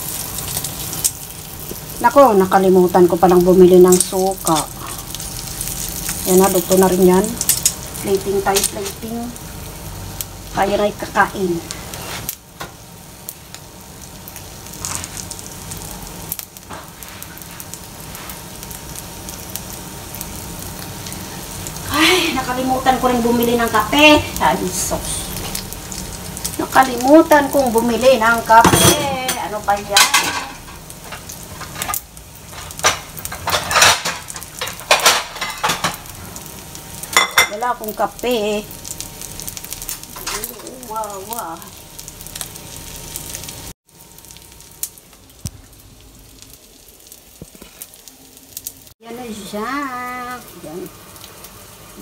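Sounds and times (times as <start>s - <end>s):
fish sizzling in oil: 0.0s - 52.0s
kitchenware clattering and scraping: 28.6s - 36.0s.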